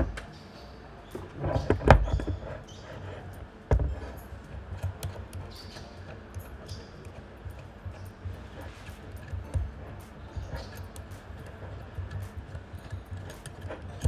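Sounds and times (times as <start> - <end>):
phone holder knocks and clicks: 3.7 - 4.1.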